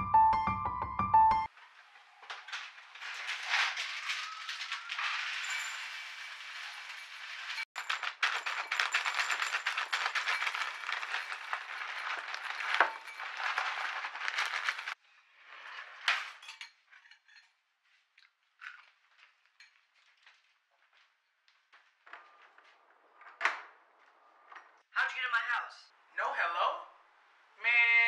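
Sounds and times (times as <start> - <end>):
cereal pouring into bowl: 4.1 - 15.0.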